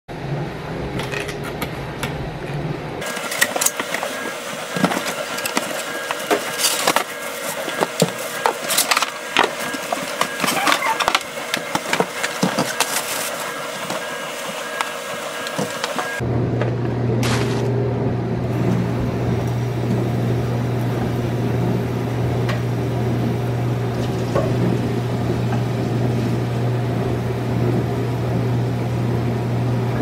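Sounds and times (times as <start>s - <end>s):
cardboard rustling: 3.0s - 16.2s.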